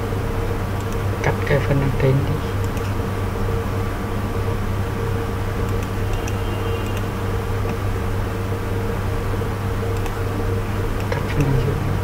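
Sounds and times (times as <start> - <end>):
steady low hum: 0.0 - 12.0
faint clicks: 9.9 - 10.2.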